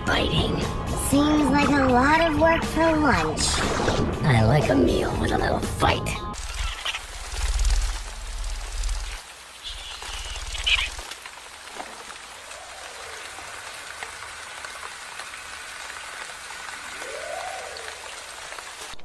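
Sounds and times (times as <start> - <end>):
steady hissing noise: 6.4 - 19.0.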